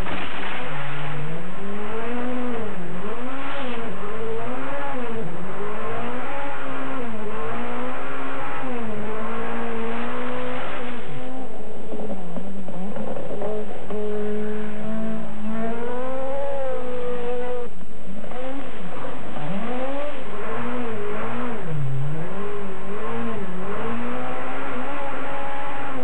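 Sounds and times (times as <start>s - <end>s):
rally car engine revving: 0.0s - 26.0s
road noise rush: 0.0s - 26.0s.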